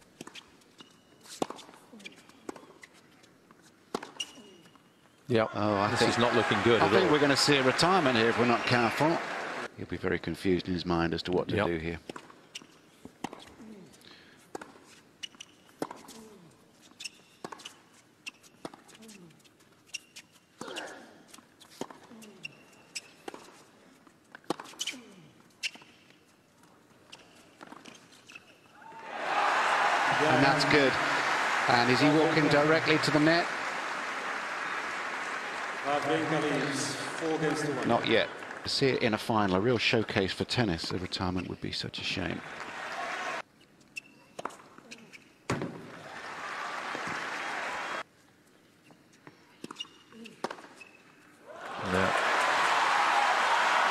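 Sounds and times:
crowd applauding: 5.7 - 9.7, 28.9 - 39.3, 42.3 - 43.4, 45.9 - 48.0, 51.6 - 53.9.

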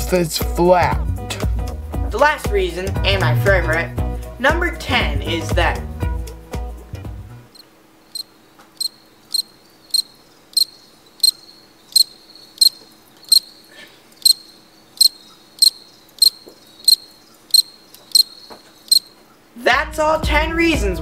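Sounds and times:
crickets chirping: 7.5 - 19.6
faint steady hum: 7.5 - 19.8.

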